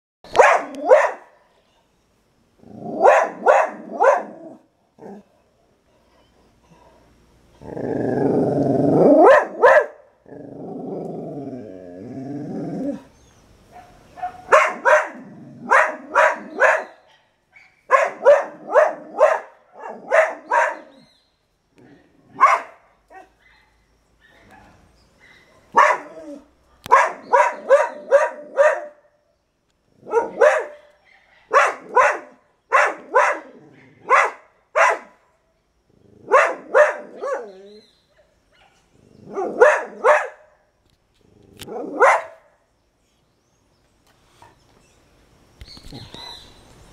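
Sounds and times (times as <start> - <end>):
dog barking: 0.3 - 1.5, 3.0 - 4.6, 9.2 - 10.1, 13.7 - 21.0, 21.8 - 26.2, 26.8 - 29.1, 30.0 - 35.2, 36.2 - 40.6, 41.7 - 42.5
dog growling: 2.6 - 5.3, 6.7 - 9.3, 10.2 - 13.1, 15.2 - 16.5, 33.4 - 34.1.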